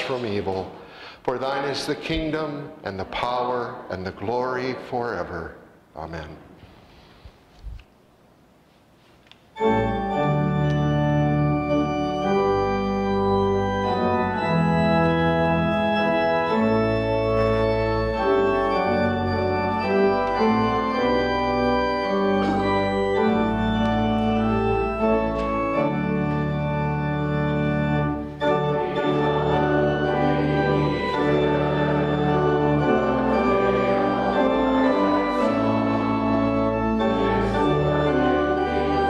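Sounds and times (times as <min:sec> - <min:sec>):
organ chords: 0:09.5 - 0:39.0.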